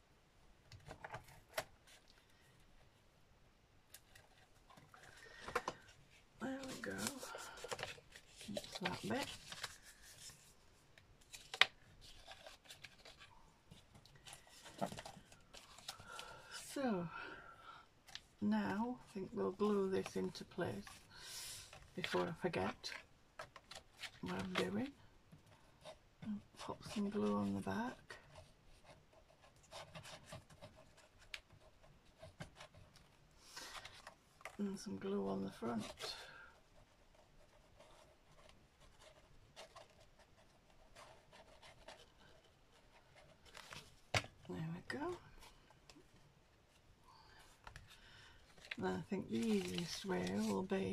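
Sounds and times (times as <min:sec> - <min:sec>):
card stock rustling and clicking: 0:03.9 - 0:16.7, 0:47.4 - 0:50.9.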